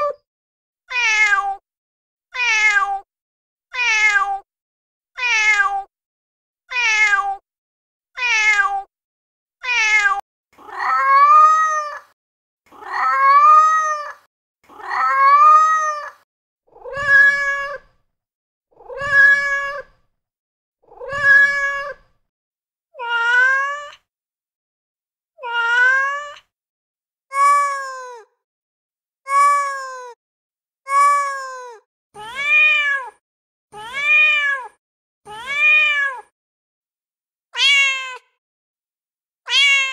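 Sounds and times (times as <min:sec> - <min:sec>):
recorded cat meows: 0:00.0 - 0:00.2, 0:00.9 - 0:01.6, 0:02.3 - 0:03.1, 0:03.7 - 0:04.5, 0:05.2 - 0:05.9, 0:06.7 - 0:07.4, 0:08.2 - 0:08.9, 0:09.6 - 0:18.0, 0:18.7 - 0:20.0, 0:20.8 - 0:22.2, 0:22.9 - 0:24.1, 0:25.4 - 0:26.5, 0:27.3 - 0:28.4, 0:29.2 - 0:30.2, 0:30.8 - 0:36.3, 0:37.5 - 0:38.4, 0:39.4 - 0:39.9.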